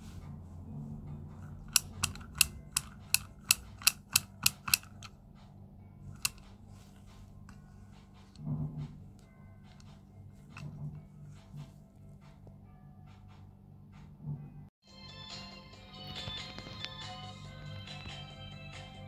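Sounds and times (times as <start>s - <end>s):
sharp clicks: 1.6s - 5.1s.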